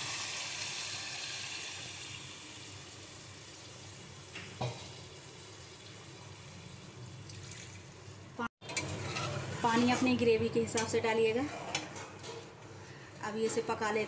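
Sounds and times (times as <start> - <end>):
water poured into hot pan: 0.0 - 8.2
frying sizzle: 0.0 - 9.9.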